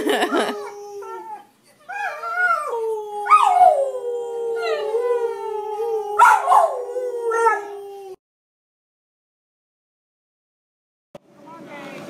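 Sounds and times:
dog howling: 0.1 - 8.2.

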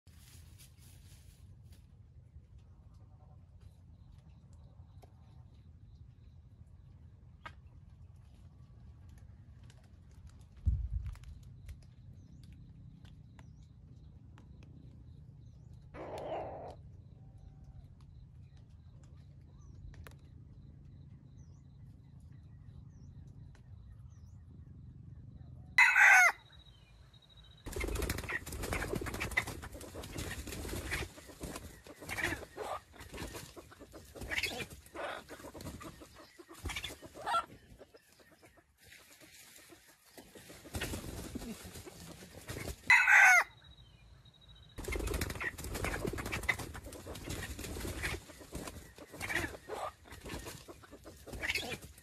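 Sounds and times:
rooster crowing: 25.8 - 26.5, 42.9 - 43.6
wings flapping: 27.7 - 42.9, 44.8 - 52.0
hen clucking: 27.7 - 43.4, 44.8 - 52.0
rustling in leaf litter: 38.8 - 42.8.

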